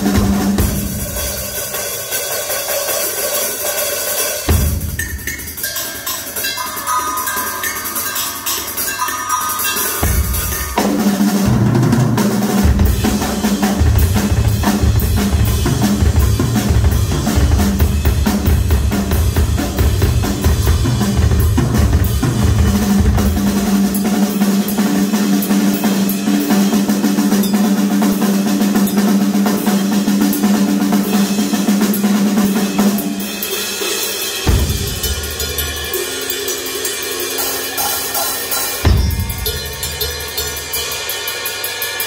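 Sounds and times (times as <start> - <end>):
cymbal: 0.0 - 42.0
rock drum solo: 0.0 - 42.0
bass drum beats: 34.5 - 35.5, 38.8 - 40.1.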